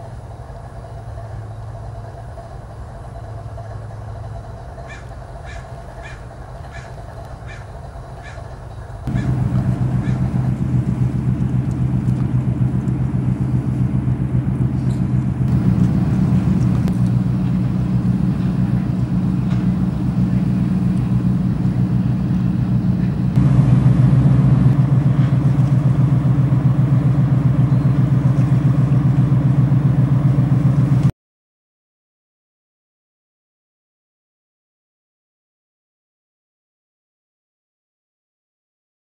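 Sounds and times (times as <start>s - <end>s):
engine low drone: 0.0s - 31.1s.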